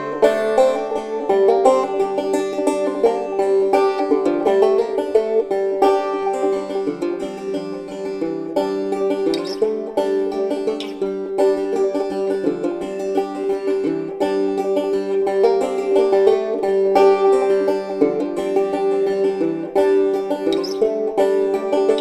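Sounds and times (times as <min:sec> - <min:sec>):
instrumental music with plucked notes: 0:00.0 - 0:22.0.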